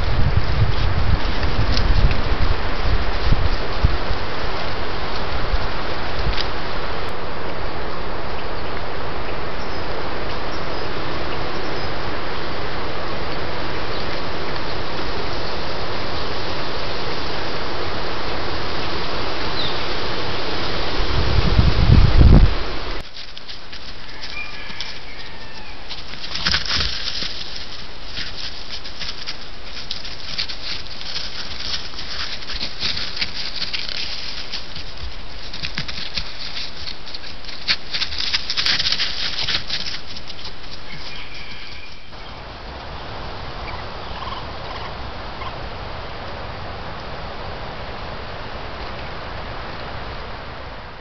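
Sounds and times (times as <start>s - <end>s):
crunching on crusty snow: 0.0s - 6.6s, 21.2s - 42.2s
steady quiet hiss: 0.0s - 51.0s.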